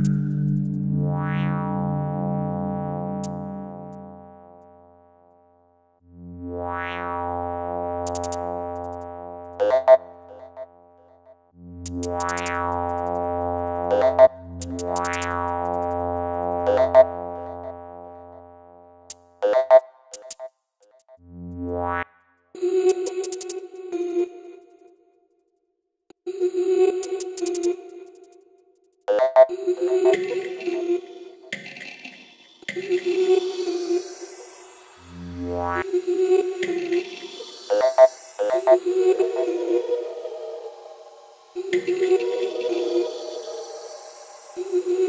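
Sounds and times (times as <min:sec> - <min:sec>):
sustained synthesizer chords: 0:00.0 - 0:05.2, 0:06.0 - 0:19.0, 0:32.8 - 0:45.0.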